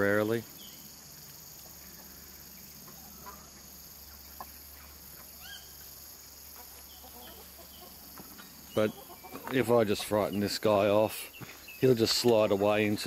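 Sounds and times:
chickens clucking: 0:00.0 - 0:13.0
high insect drone: 0:00.0 - 0:13.0.

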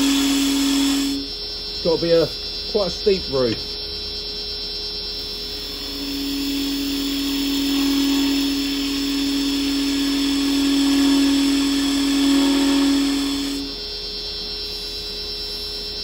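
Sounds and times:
chisel cutting wood on a lathe: 0:00.0 - 0:01.3, 0:05.6 - 0:13.8
lathe running hum: 0:00.0 - 0:16.0.

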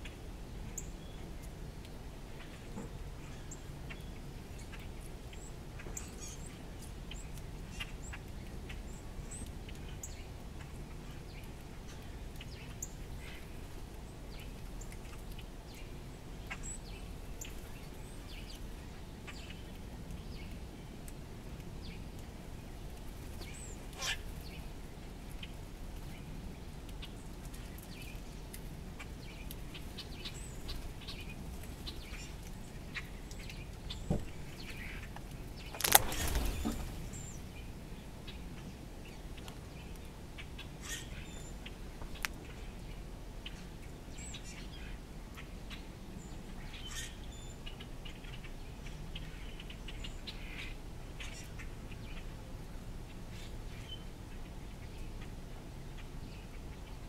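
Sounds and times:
birds chirping: 0:21.8 - 0:52.3.

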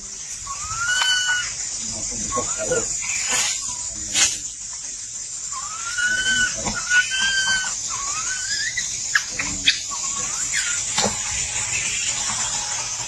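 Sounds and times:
steady high hiss: 0:00.0 - 0:13.0
infant monkey whimpering: 0:00.5 - 0:01.5, 0:02.2 - 0:03.9, 0:05.5 - 0:10.9.

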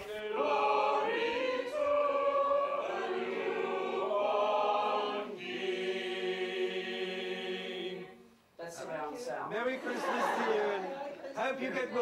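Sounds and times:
mixed choir singing chords: 0:00.0 - 0:08.4.

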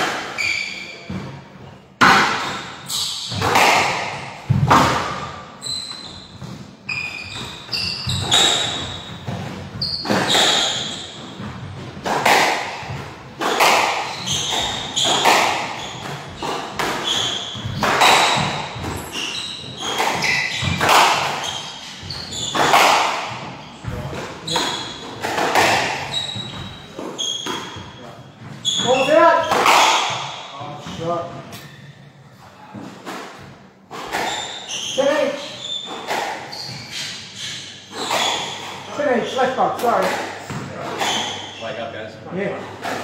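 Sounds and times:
shoes squeaking on wooden floor: 0:00.3 - 0:41.9
squash ball hits echoing: 0:02.0 - 0:05.6, 0:06.4 - 0:27.9, 0:28.5 - 0:31.1.

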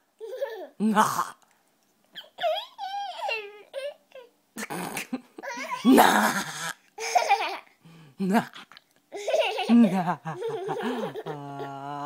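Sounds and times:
toddler squealing and giggling: 0:02.2 - 0:04.0.

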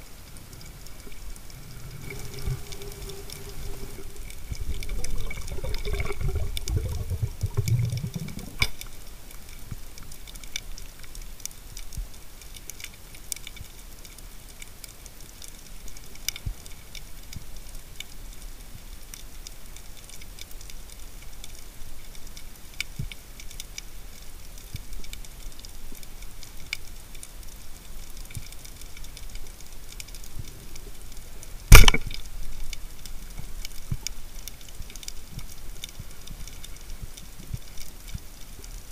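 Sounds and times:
rush of water: 0:00.0 - 0:11.8
faint crackling clicks underwater: 0:00.0 - 0:38.9
speargun firing crack: 0:31.7 - 0:32.1.

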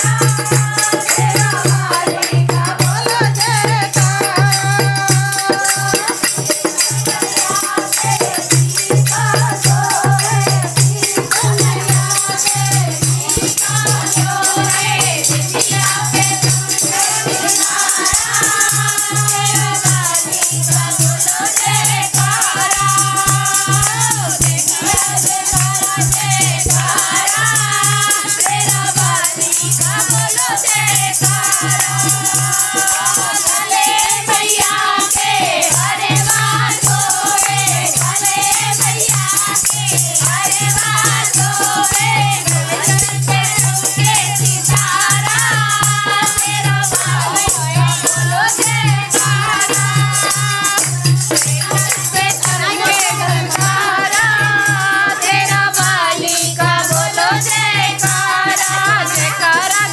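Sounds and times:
shaken rattle jingling: 0:00.0 - 0:59.9
women singing devotional song: 0:00.0 - 0:59.9
hand clapping: 0:35.9 - 0:56.0.

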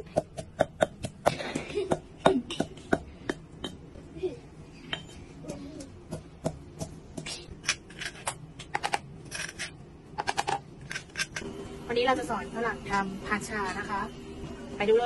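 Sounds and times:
pestle pounding in stone mortar: 0:00.0 - 0:03.8, 0:05.4 - 0:07.3.

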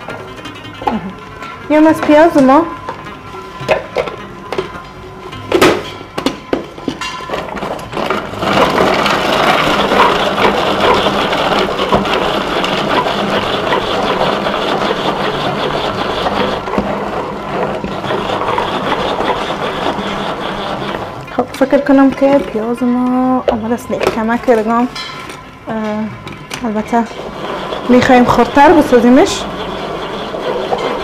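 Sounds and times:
food chopper knocking: 0:08.0 - 0:21.1
chopper blades rattling: 0:26.8 - 0:31.0.

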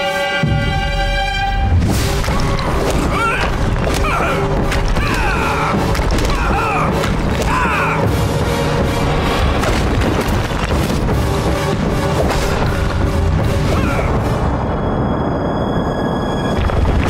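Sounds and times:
background music: 0:00.0 - 0:17.0
rock slabs thudding and crashing: 0:01.8 - 0:07.9, 0:09.0 - 0:13.8.

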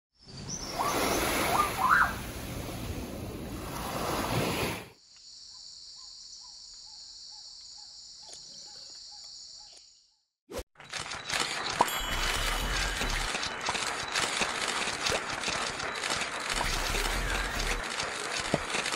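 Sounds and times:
rising whistles: 0:00.5 - 0:02.2.

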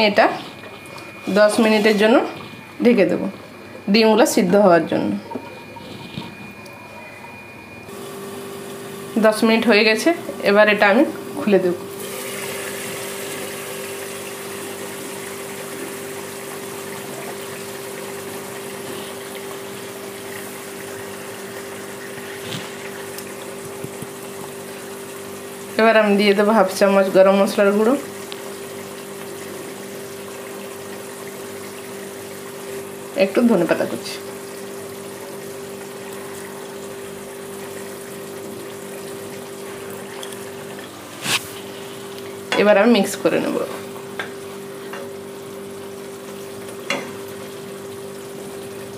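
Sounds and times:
gravy bubbling: 0:00.0 - 0:09.4, 0:11.1 - 0:25.8
curry bubbling and hissing: 0:00.0 - 0:48.9.

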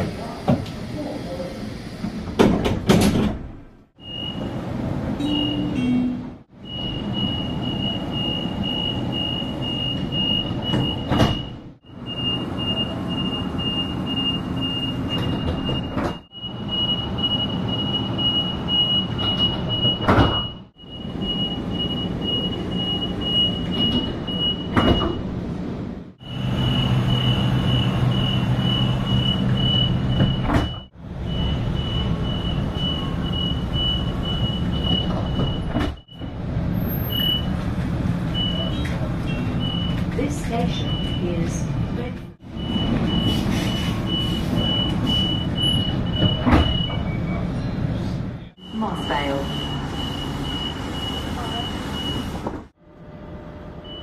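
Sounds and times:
train hum: 0:00.0 - 0:36.7
steady high door warning tone: 0:04.0 - 0:25.3, 0:26.2 - 0:36.4, 0:39.6 - 0:47.6, 0:48.6 - 0:52.4.

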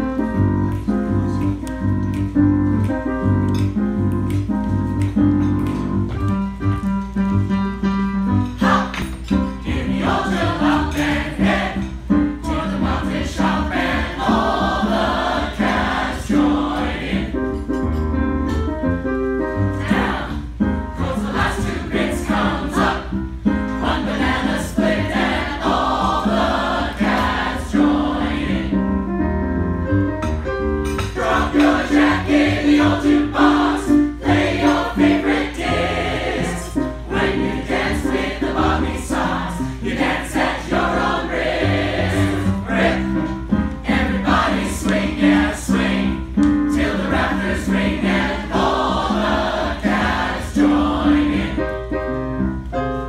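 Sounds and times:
group singing upbeat song: 0:08.6 - 0:17.6, 0:19.7 - 0:28.8, 0:31.0 - 0:51.8.

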